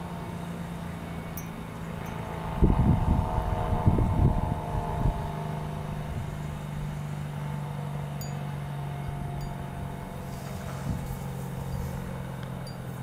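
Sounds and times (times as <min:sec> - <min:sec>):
wind rumbling on microphone: 0:01.9 - 0:07.0, 0:09.0 - 0:13.0.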